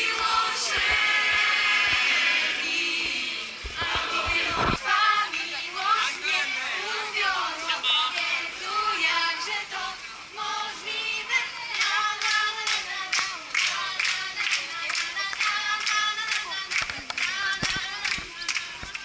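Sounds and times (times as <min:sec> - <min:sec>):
rhythmic hand-clapping: 0:00.0 - 0:05.5, 0:11.7 - 0:19.0
group singing together: 0:00.0 - 0:19.0.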